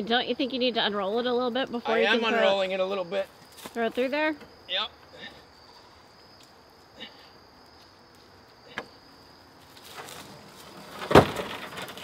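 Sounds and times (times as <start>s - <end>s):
insects trilling: 0.0s - 12.0s
heavy thud of mesh landing: 11.0s - 12.0s.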